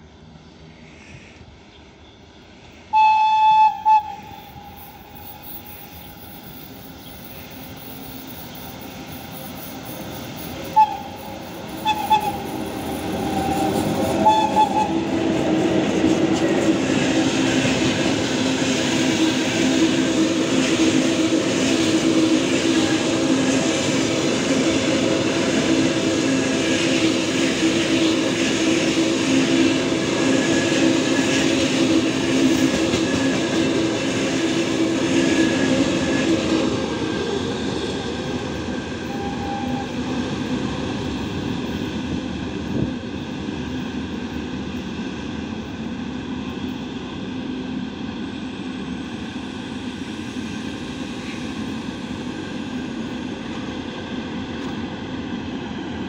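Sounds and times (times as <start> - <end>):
train rumbling past: 0.0 - 56.0
train horn blasting: 2.9 - 4.8, 10.8 - 12.5, 14.2 - 15.1, 39.0 - 40.0.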